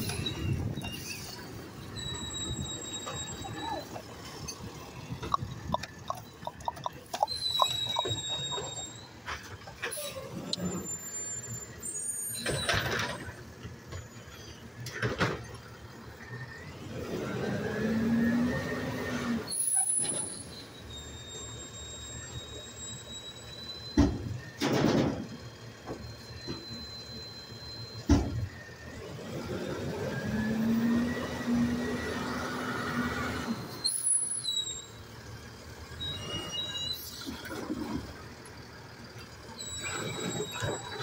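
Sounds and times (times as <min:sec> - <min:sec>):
garbage truck engine revving: 0:28.8 - 0:34.0.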